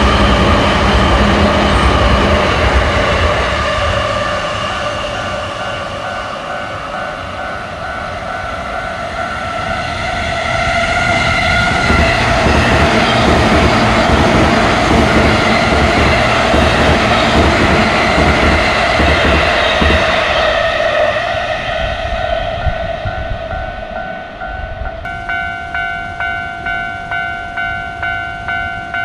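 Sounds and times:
electric train passing: 0.0 - 29.0
level crossing bell ringing: 23.1 - 29.0.

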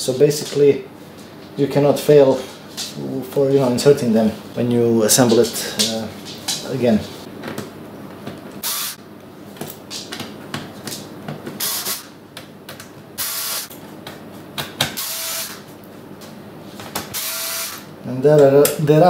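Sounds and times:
electric screwdriver whirring: 8.6 - 9.0, 11.6 - 12.1, 13.2 - 13.7, 15.0 - 15.6, 17.1 - 17.9.

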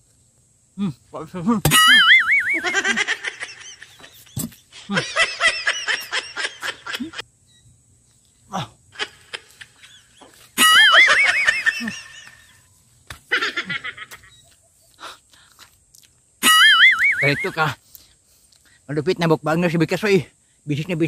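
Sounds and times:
high warbling laugh-like cries: 1.7 - 7.2, 8.5 - 12.7, 13.3 - 15.0, 16.4 - 17.7.

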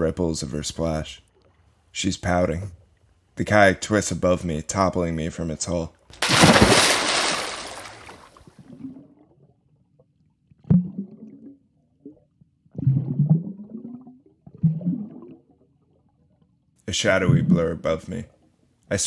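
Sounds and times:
loud water splash: 6.2 - 8.4
underwater gurgling and bubbling: 10.7 - 15.6.

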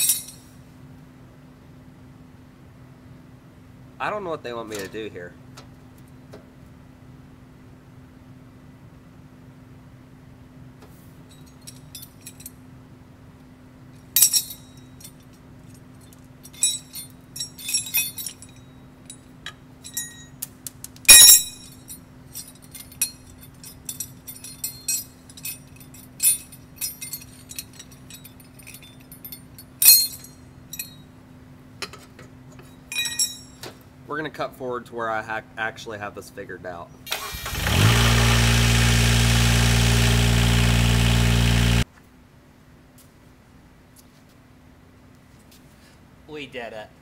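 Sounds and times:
metal bracket clinking: 0.0 - 0.5, 14.2 - 15.3, 16.4 - 20.4, 21.1 - 31.0, 32.9 - 33.6.

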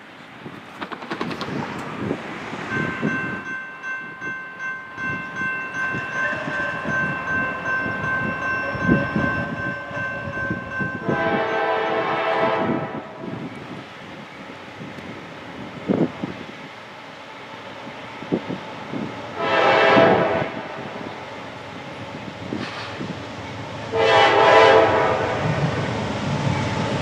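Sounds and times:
low rumble of train: 0.0 - 27.0
locomotive air horn chord: 11.0 - 13.2, 19.4 - 21.0, 23.9 - 25.6.

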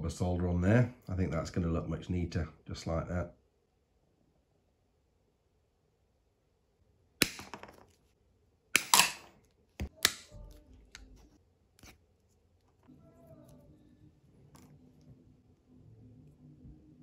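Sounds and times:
faint low hum: 9.3 - 17.0.

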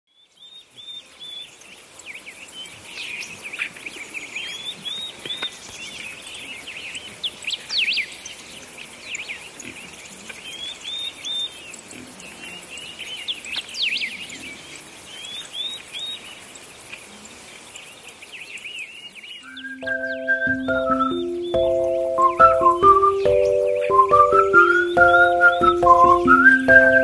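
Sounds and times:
small birds chirping: 0.1 - 27.0
insects pulsing: 19.6 - 27.0.

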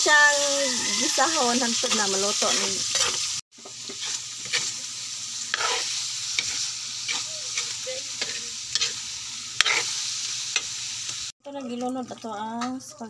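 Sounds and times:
meat sizzling in a wok: 0.0 - 13.0
spatula scraping a pan: 0.4 - 4.9, 5.5 - 10.8.

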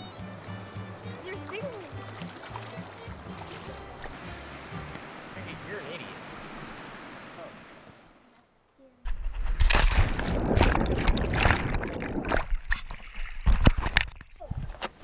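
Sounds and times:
water sloshing against camera: 0.0 - 7.8, 9.1 - 15.0
splash into water: 1.4 - 4.2, 9.3 - 14.2
underwater rushing and bubbling: 9.4 - 14.7.

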